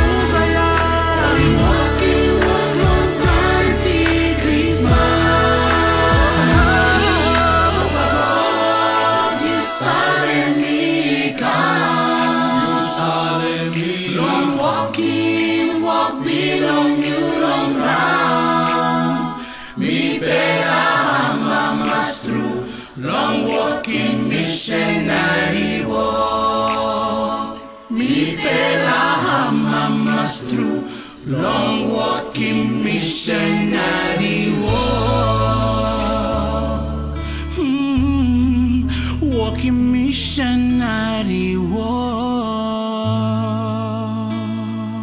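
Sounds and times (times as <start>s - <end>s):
mixed choir singing gospel harmony: 0.0s - 37.9s.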